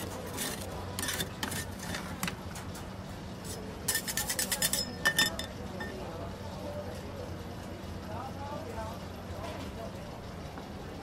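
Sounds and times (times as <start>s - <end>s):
metal spatulas scraping steel plate: 0.0s - 2.3s, 3.4s - 5.5s
low machine hum: 0.0s - 11.0s.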